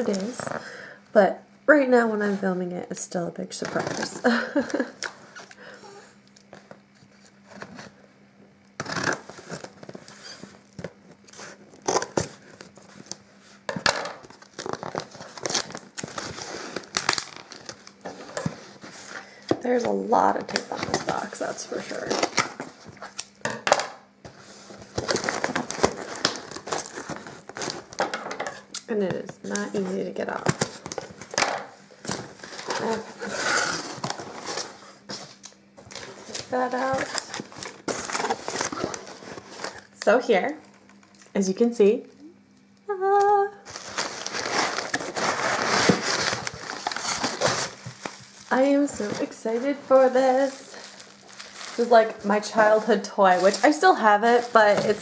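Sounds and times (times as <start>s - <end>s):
packing paper rustling: 0.0s - 0.7s, 8.8s - 23.4s, 24.2s - 41.0s, 43.6s - 55.0s
scissors cutting packing tape: 8.8s - 10.2s, 10.8s - 13.2s, 14.4s - 18.5s
cardboard box ripping open: 8.8s - 10.4s, 14.4s - 18.4s, 32.1s - 34.7s, 35.9s - 39.8s, 43.7s - 48.1s.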